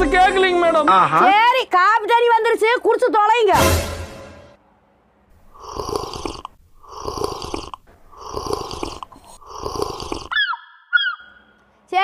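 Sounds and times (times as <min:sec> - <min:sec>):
person slurping coffee: 0:05.4 - 0:10.4.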